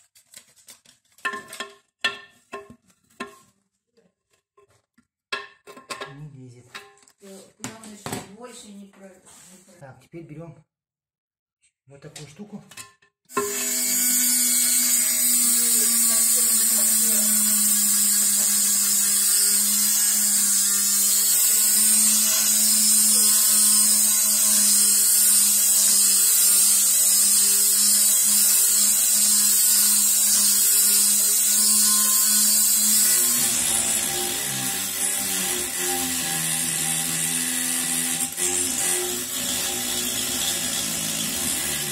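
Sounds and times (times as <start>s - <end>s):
rotary tool high-pitched whine: 13.3s - 41.9s.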